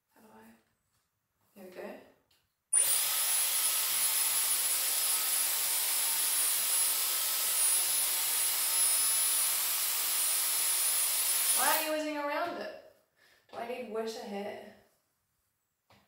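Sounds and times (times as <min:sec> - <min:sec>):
hair styler air rush and whine: 0:02.8 - 0:11.9.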